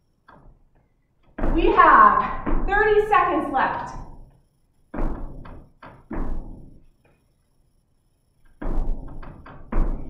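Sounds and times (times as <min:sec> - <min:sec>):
feet thudding on gym floor: 0:01.2 - 0:03.1, 0:04.9 - 0:06.8, 0:08.5 - 0:10.0.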